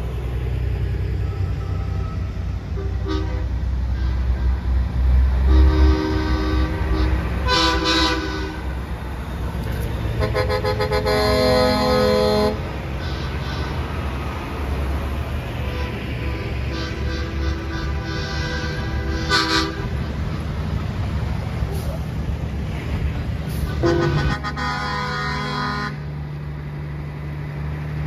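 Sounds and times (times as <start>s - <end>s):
diesel engines rumbling: 0.0s - 28.0s
truck air horns blowing: 1.2s - 8.9s, 9.6s - 14.4s, 15.5s - 20.6s, 23.5s - 26.2s.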